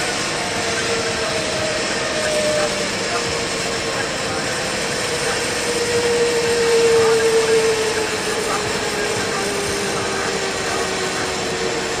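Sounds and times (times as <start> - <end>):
droning tone dropping in pitch: 0.0 - 12.0
vehicle road and engine noise: 0.0 - 12.0.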